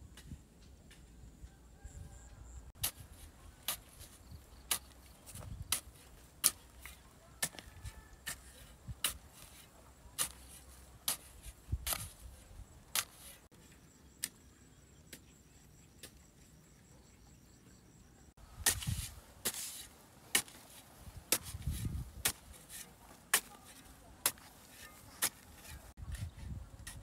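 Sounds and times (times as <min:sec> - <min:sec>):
hoe striking stony soil: 0:02.8 - 0:13.5, 0:18.6 - 0:27.0.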